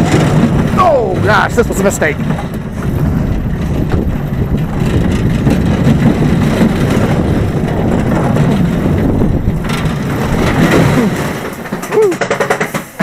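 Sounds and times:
roller coaster rattling on track: 0.0s - 13.0s.

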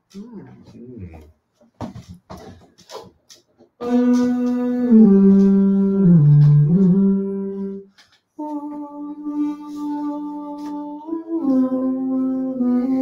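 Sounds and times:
person singing long notes: 3.8s - 13.0s.

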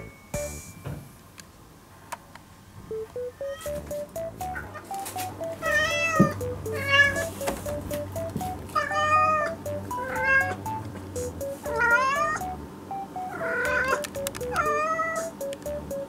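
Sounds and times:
light background music: 0.0s - 1.0s, 2.9s - 16.0s
cat meowing: 8.8s - 10.6s, 11.7s - 12.4s, 13.4s - 14.0s, 14.6s - 15.2s.

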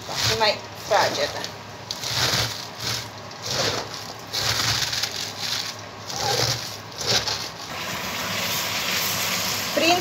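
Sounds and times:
cabbage crunching squeezed by hand: 1.9s - 7.7s.

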